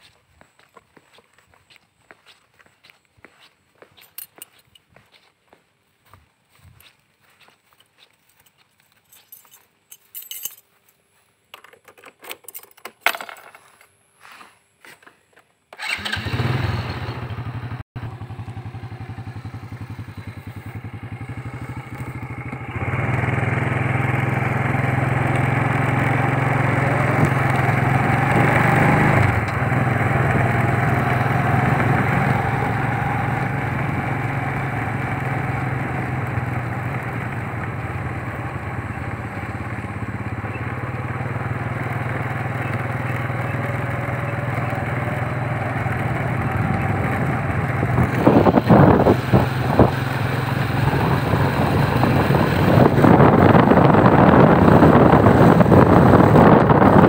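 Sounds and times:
footsteps: 0.0s - 11.6s, 13.3s - 15.4s
motorcycle engine running: 15.8s - 57.0s.

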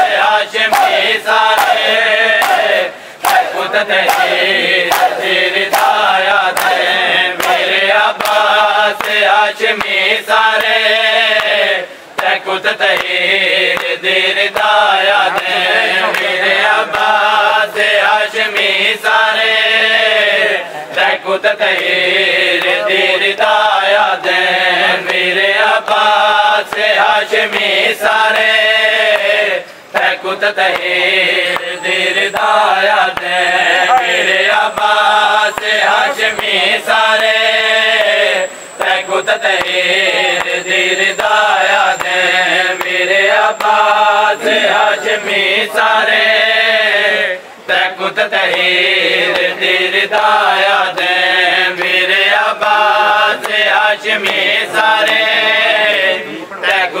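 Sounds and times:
mourners chanting in unison: 0.0s - 57.0s
hands slapping bare chests: 2.4s - 6.8s, 7.4s - 7.6s.

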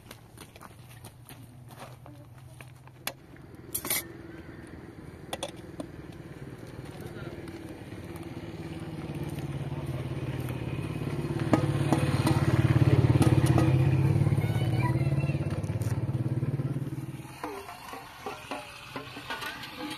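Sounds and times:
engine humming: 0.0s - 19.9s
knocks and clatters: 11.3s - 14.0s, 17.2s - 19.9s.

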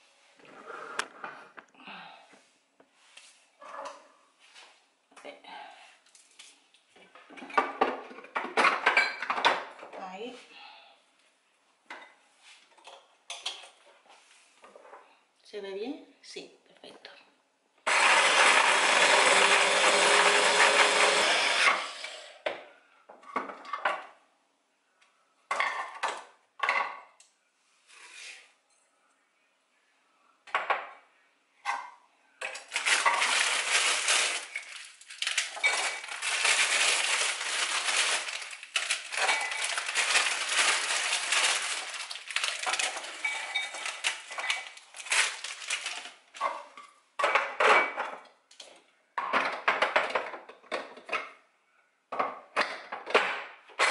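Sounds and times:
clatter of bowls and utensils: 31.7s - 51.4s.

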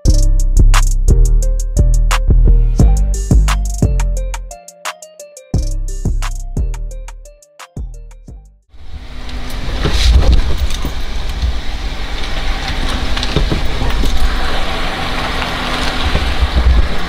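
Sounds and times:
car engine and tyres rumbling: 8.8s - 17.0s.

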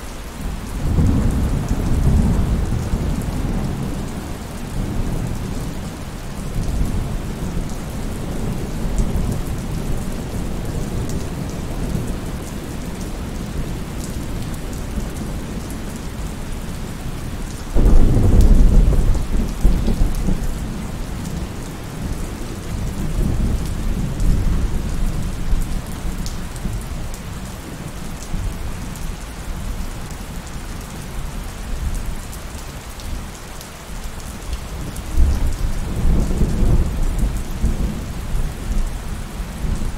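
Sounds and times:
heavy rain falling: 0.0s - 39.9s
rolling thunder: 17.8s - 25.9s.

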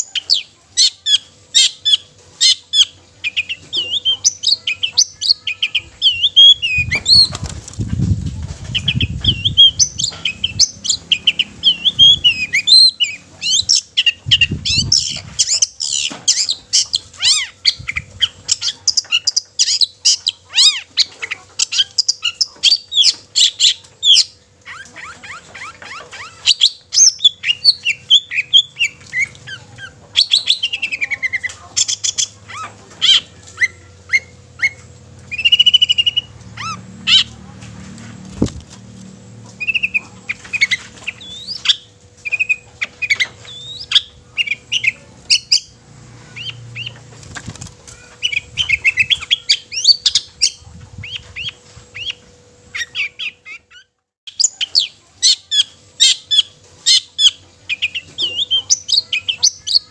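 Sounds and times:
shrike singing: 0.0s - 7.4s, 8.7s - 37.4s, 39.5s - 47.1s.

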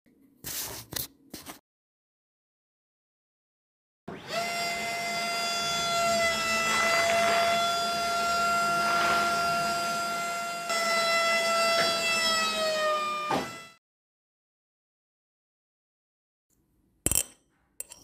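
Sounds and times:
small electric motor whining: 4.1s - 13.8s.

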